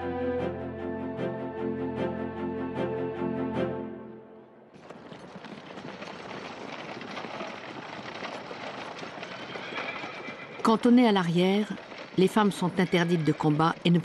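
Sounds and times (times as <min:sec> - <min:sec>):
background music: 0:00.0 - 0:04.7
cart wheels on a road: 0:04.7 - 0:14.0
horses' hooves clattering: 0:04.8 - 0:14.0.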